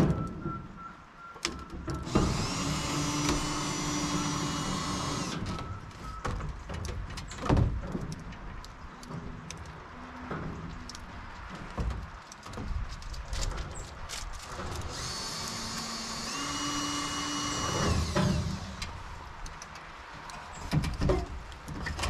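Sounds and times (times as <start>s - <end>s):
power drill whining: 2.1s - 5.6s, 14.9s - 18.8s.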